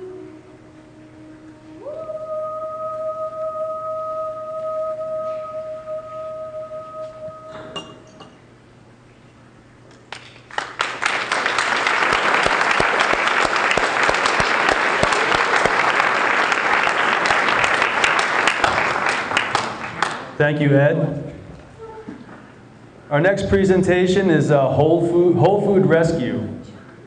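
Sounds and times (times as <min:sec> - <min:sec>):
background music note: 0:00.0 - 0:07.9
audience applause: 0:10.1 - 0:20.4.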